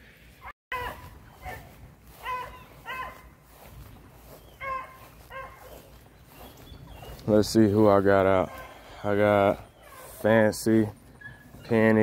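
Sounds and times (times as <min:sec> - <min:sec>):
dogs barking: 0:00.7 - 0:03.4, 0:04.4 - 0:06.0, 0:08.1 - 0:10.5.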